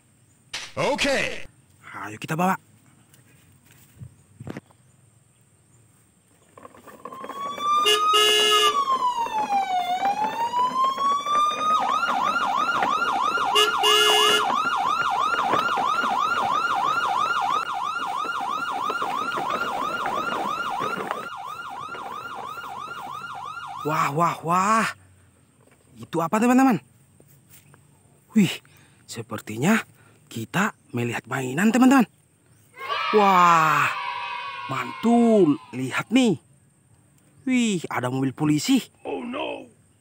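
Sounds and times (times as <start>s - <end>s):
emergency siren wailing and yelping: 6.8s - 24.5s, 32.8s - 35.8s
short horn blasts: 7.8s - 8.8s, 13.5s - 14.5s.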